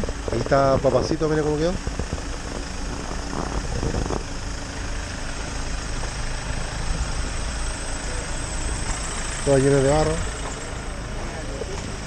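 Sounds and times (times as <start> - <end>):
engine idling: 0.0 - 12.0
faint voices: 10.0 - 12.0.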